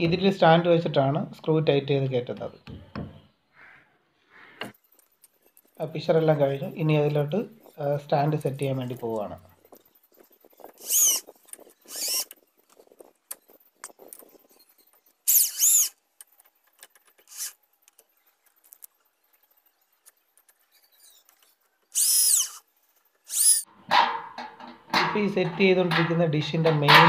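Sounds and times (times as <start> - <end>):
cordless drill motor whine: 10.7 - 12.4, 15.3 - 16.0, 17.2 - 17.6, 21.9 - 22.7, 23.3 - 23.6
faint clicks and knocks: 16.2 - 21.9.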